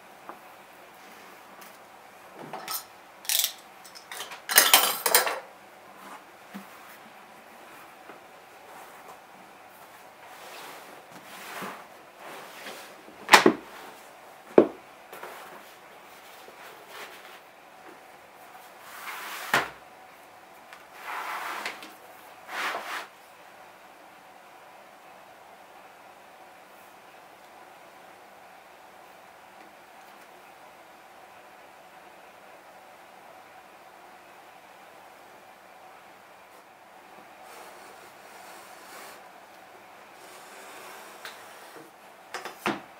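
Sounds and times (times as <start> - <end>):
leather dragging on table: 9.8 - 13.0, 18.6 - 19.6, 20.9 - 23.1, 37.4 - 39.3, 40.2 - 41.9
scraping slides: 21.0 - 23.1.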